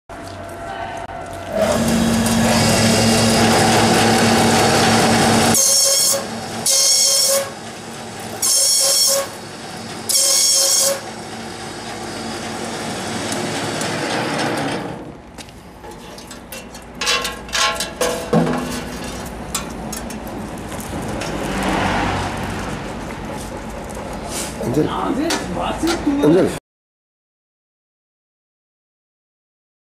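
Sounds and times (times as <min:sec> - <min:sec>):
machine motor hum: 0:01.2 - 0:15.2
high-pitched cutting bursts: 0:01.6 - 0:07.6.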